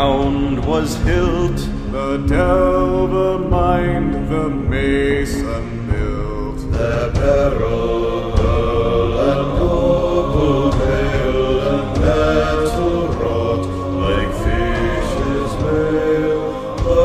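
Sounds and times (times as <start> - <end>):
choir singing long notes: 0.0 - 17.0.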